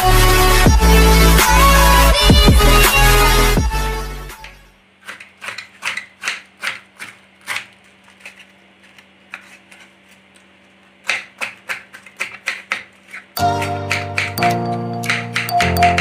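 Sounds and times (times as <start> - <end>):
knife cutting cabbage on board: 5.0 - 14.4.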